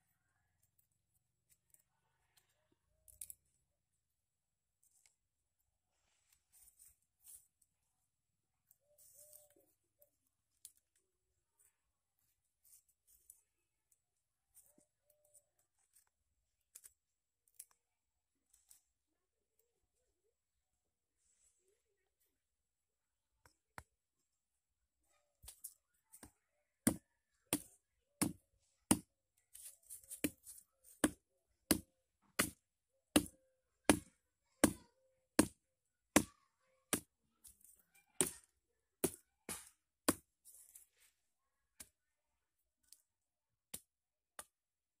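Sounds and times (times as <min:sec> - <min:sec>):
stone axe chopping wood: 0:26.8 - 0:29.1, 0:31.0 - 0:34.8, 0:35.4 - 0:36.3, 0:39.0 - 0:40.3.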